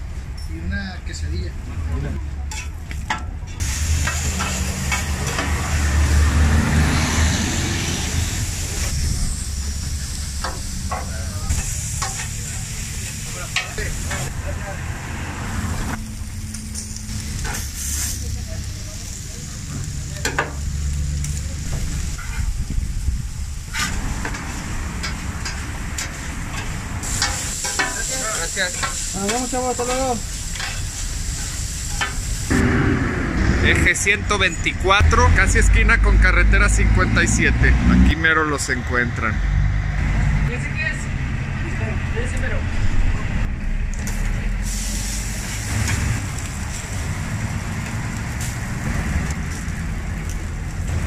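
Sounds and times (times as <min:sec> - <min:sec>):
meat sizzling: 0:03.6 - 0:14.8, 0:15.8 - 0:32.5, 0:44.6 - 0:51.0
steady low rumble: 0:07.6 - 0:27.5, 0:29.5 - 0:51.0
metal spatula scraping griddle: 0:22.1 - 0:22.6, 0:23.7 - 0:32.0
metal spatula scraping: 0:23.7 - 0:24.4.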